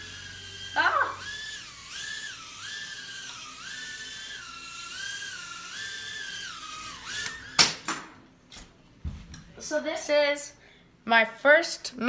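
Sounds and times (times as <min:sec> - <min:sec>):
quadcopter motors whining: 0:00.0 - 0:07.6.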